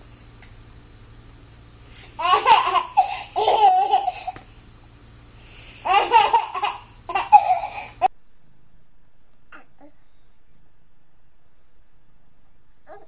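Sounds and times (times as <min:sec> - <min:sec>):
baby laughing: 0:02.2 - 0:04.4, 0:05.8 - 0:08.1.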